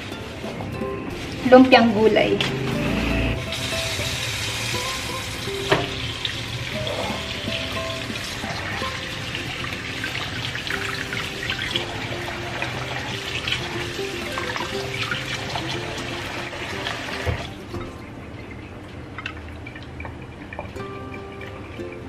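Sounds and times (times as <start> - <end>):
soft background music: 0.0 - 22.0
faucet running into bowl: 3.4 - 18.0.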